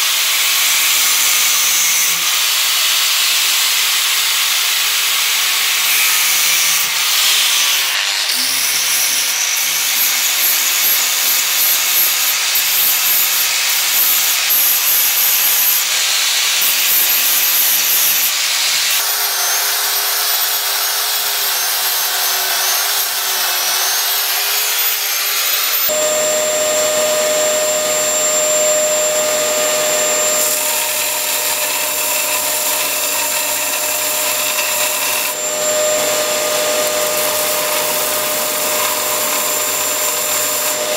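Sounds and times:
angle grinder cutting metal: 0.0s - 40.9s
belt sander sanding wood: 10.8s - 40.9s
power belt file running: 16.1s - 40.9s.

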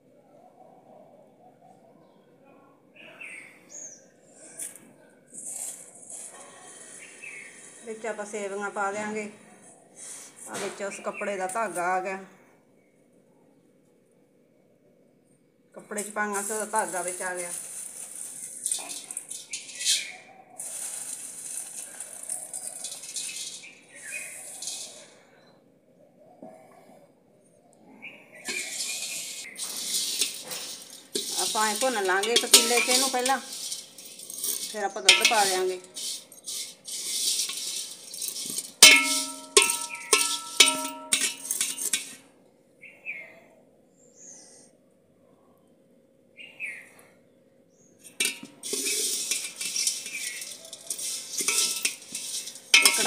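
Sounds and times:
ladle scraping dry noodles: 4.4s - 8.5s, 16.0s - 25.3s, 28.5s - 42.2s, 48.0s - 53.0s
vermicelli pattering into metal pot: 16.0s - 25.1s, 28.5s - 42.2s, 48.0s - 53.0s
steady high hiss: 28.5s - 42.3s, 48.0s - 53.0s.

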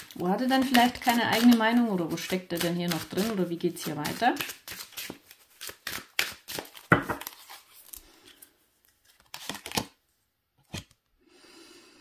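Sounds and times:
cards being shuffled: 0.0s - 8.0s, 8.9s - 10.0s.

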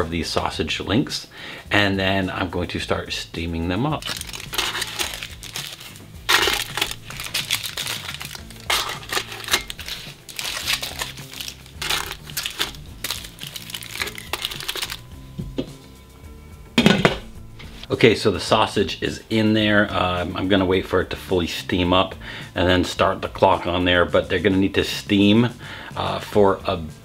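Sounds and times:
background music: 0.0s - 27.0s
aluminium foil crinkling: 4.0s - 15.1s.

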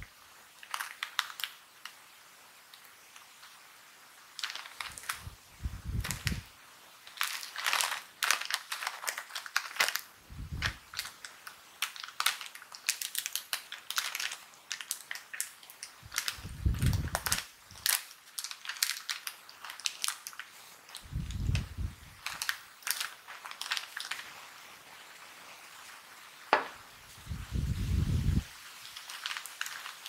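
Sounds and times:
plastic wrapper crinkling: 0.5s - 2.0s, 4.3s - 26.8s, 28.3s - 30.0s
plastic packet tearing open: 0.6s - 2.0s, 4.4s - 5.3s, 6.0s - 6.4s, 7.0s - 24.7s, 28.7s - 30.0s.

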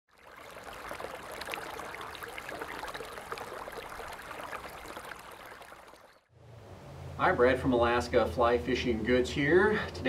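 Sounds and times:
stream flowing water: 0.1s - 6.3s.

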